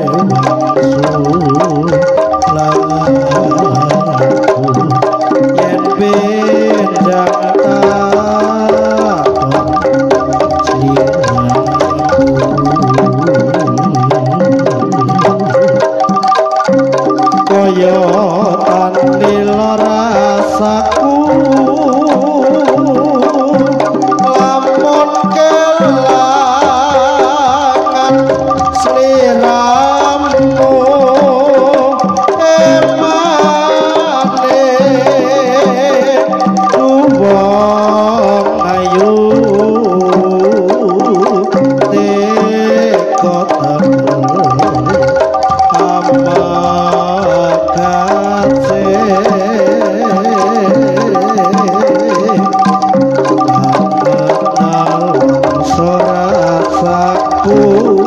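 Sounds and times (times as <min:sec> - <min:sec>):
gamelan mallet instruments: 0:00.0 - 0:58.0
hand drums: 0:00.0 - 0:58.0
wavering melody line: 0:00.0 - 0:58.0.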